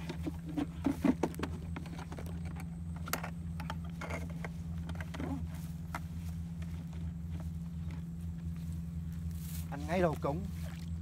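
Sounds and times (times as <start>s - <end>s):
knocks and rattles at plastic bucket: 0.0s - 6.1s
low electrical hum: 0.0s - 11.0s.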